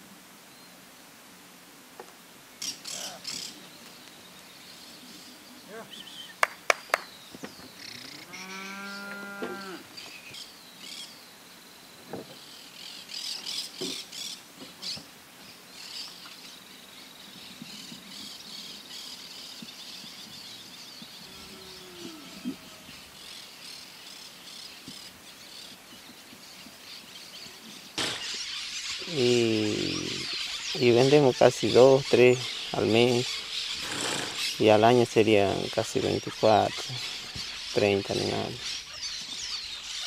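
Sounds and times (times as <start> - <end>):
birds chirping: 2.5 - 40.0
cattle mooing: 7.9 - 9.9, 21.2 - 23.0
sharp knocks: 28.0 - 28.4.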